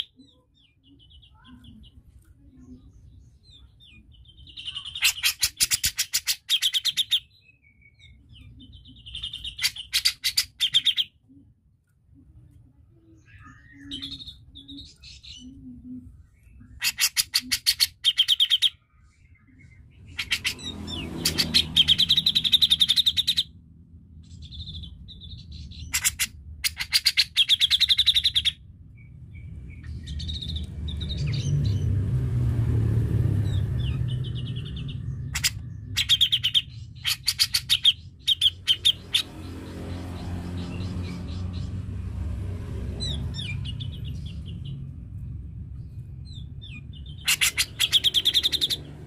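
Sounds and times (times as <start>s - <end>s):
bird chattering calls: 4.7s - 7.3s, 16.7s - 18.8s, 20.1s - 23.5s, 25.8s - 28.6s, 33.8s - 39.5s, 46.7s - 48.8s
low rumble: 28.6s - 37.1s, 38.0s - 48.2s.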